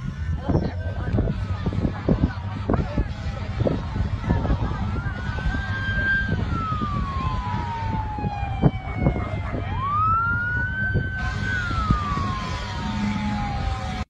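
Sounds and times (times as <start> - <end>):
steady low rumble: 0.0 - 14.0
fire engine siren wailing: 4.3 - 14.0.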